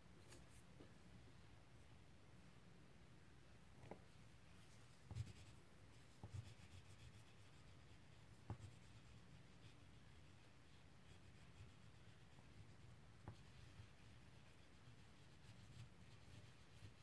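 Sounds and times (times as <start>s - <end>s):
crayon scratching on paper: 5.1s - 17.0s.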